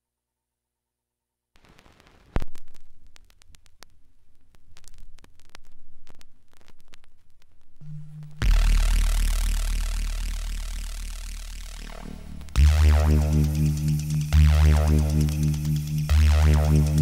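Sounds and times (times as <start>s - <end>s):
vinyl surface noise crackling: 1.6s - 12.6s.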